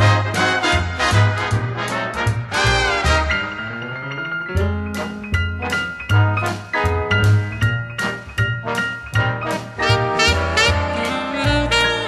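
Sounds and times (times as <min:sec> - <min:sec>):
steady bass line: 0:00.0 - 0:12.0
mallet percussion notes: 0:03.0 - 0:12.0.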